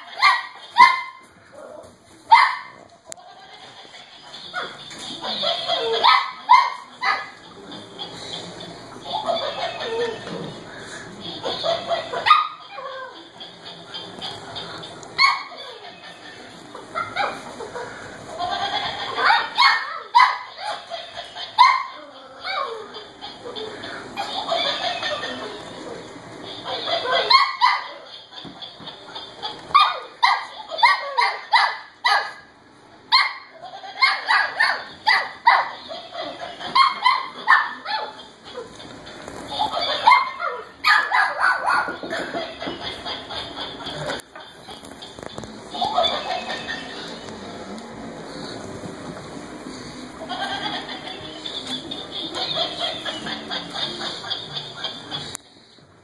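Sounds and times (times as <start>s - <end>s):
dog yipping and barking: 0.1s - 1.2s, 2.3s - 2.8s, 5.4s - 7.3s, 11.6s - 13.1s, 15.2s - 15.8s, 19.2s - 20.8s, 21.6s - 22.8s, 26.9s - 28.0s, 29.7s - 32.4s, 33.1s - 35.8s, 36.7s - 38.2s, 39.8s - 42.0s
puppies yipping and whining: 9.1s - 10.5s, 33.1s - 44.2s.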